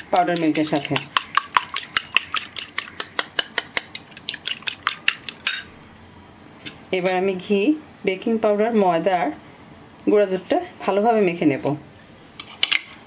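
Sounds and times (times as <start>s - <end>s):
fork beating egg in glass bowl: 0.0s - 5.7s.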